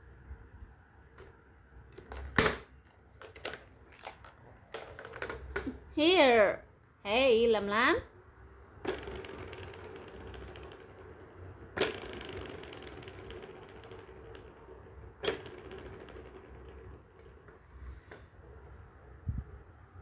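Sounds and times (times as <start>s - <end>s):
balls rolling in toy track: 1.2s - 5.9s, 8.7s - 18.7s.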